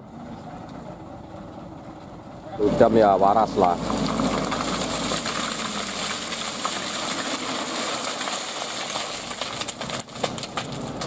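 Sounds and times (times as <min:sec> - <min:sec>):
truck engine running: 0:00.0 - 0:11.0
rocks clattering onto road: 0:03.5 - 0:11.0.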